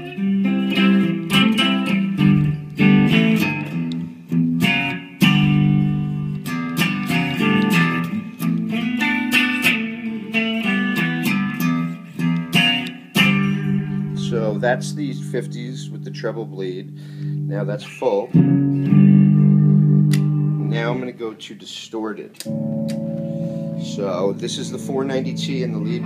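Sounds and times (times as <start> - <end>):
clean electric guitar chords: 0.0 - 21.2, 22.4 - 26.0.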